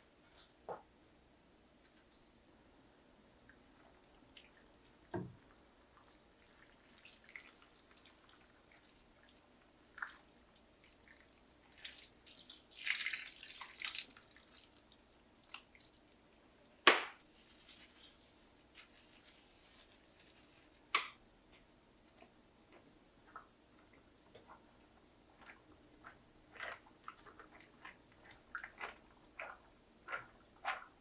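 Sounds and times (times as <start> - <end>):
liquid trickling and splashing: 3.9 - 16.2
light drips and clicks: 9.2 - 16.2.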